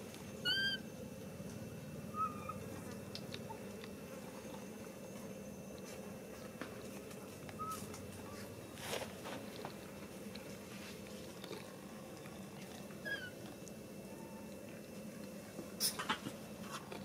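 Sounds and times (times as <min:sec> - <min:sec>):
low background hum: 0:00.0 - 0:17.0
baby monkey squeaking: 0:00.4 - 0:00.8, 0:02.2 - 0:02.6.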